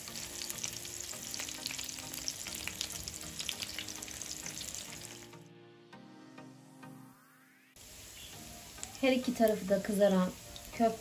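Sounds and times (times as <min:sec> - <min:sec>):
meatballs sizzling in a frying pan: 0:00.0 - 0:05.3, 0:07.8 - 0:11.0
soft background music: 0:00.0 - 0:11.0.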